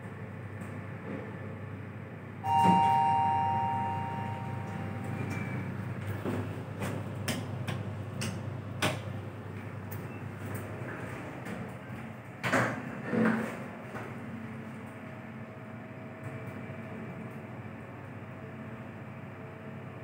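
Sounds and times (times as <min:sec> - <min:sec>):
steady low hum: 0:00.0 - 0:12.4
elevator two-tone chime: 0:02.4 - 0:06.0
elevator doors sliding open: 0:02.5 - 0:07.1.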